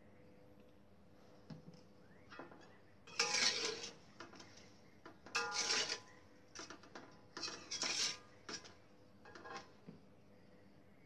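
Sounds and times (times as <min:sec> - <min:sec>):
metal ladle scraping a wok: 0:03.1 - 0:04.6, 0:05.3 - 0:09.8.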